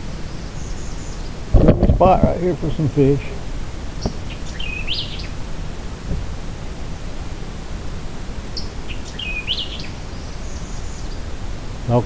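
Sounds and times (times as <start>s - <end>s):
low background rumble: 0.0s - 12.0s
songbird singing: 0.0s - 12.0s
faint low knock: 6.1s - 6.3s.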